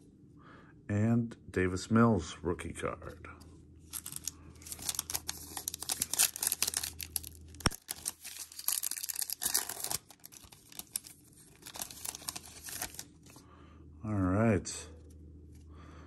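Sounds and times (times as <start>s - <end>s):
wrapper crinkling and tearing: 3.9s - 13.4s.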